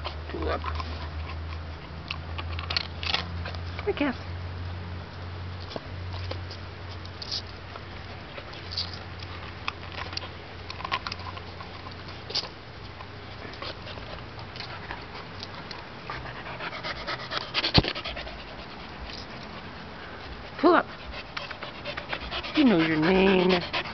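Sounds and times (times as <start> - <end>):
small clicks and rustles: 5.1 - 16.3
dogs panting: 7.7 - 23.9.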